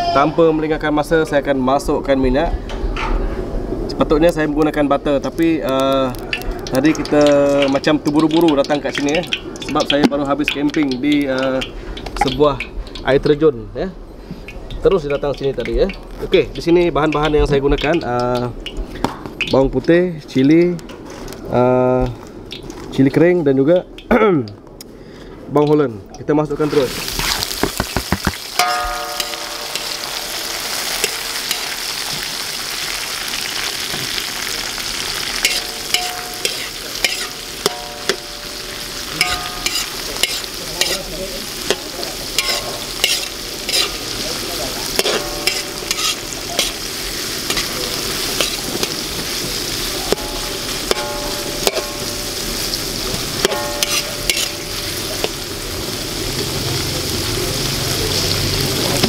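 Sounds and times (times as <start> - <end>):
food sizzling in oil: 3.1 - 13.1, 26.5 - 59.0
metal spoon scraping a wok: 35.4 - 41.1, 41.7 - 55.4.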